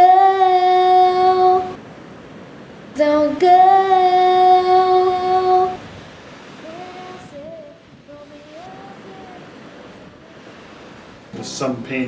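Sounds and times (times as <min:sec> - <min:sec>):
woman singing pop song: 0:00.0 - 0:01.8, 0:03.0 - 0:05.8, 0:06.6 - 0:09.5
faint steady hiss: 0:00.0 - 0:12.0.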